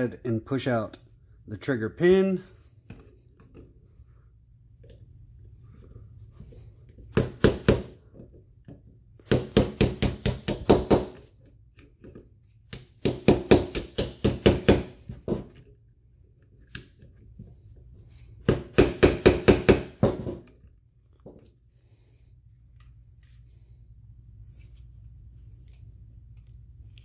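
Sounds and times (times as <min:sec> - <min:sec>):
hammer tapping a pin punch: 0:12.7 - 0:15.4.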